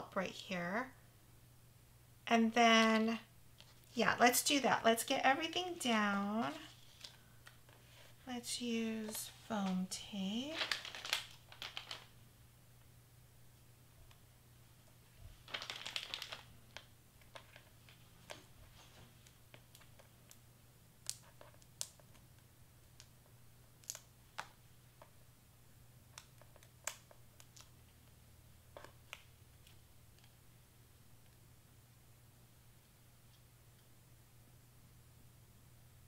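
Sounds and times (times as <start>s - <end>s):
paper crinkling: 6.4s - 8.2s, 9.0s - 12.1s, 15.2s - 20.4s.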